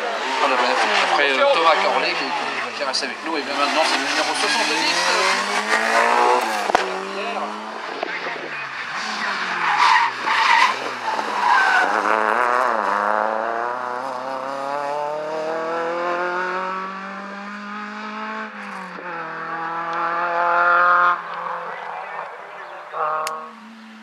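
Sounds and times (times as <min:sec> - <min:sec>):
rally car engine revving: 0:00.0 - 0:24.0
tyre squeal: 0:09.4 - 0:12.0.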